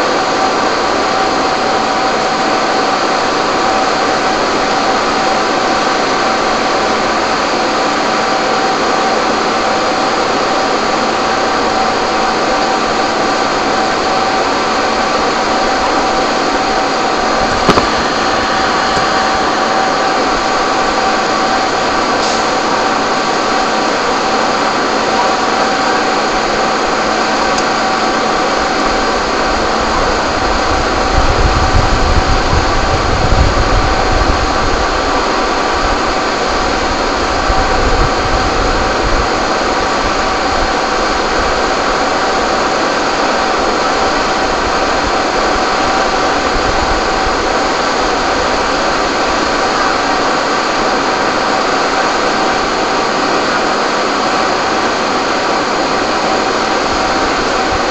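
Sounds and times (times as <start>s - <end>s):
diesel engines and pumps droning: 0.0s - 57.9s.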